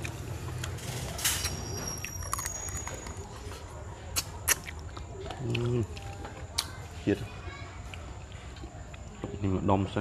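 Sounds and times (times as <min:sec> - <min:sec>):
mouth smacks and clicks: 0:04.1 - 0:06.8.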